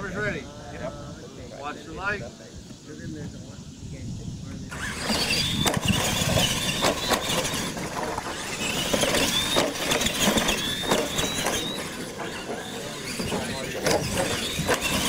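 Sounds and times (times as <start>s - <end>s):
toy truck motors whining: 4.7s - 15.0s
trucks knocking landing off ramps: 4.8s - 15.0s.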